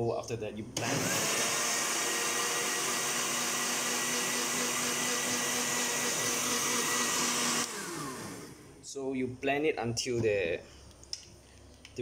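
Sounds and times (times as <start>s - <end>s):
electric blender running: 0.8s - 8.7s.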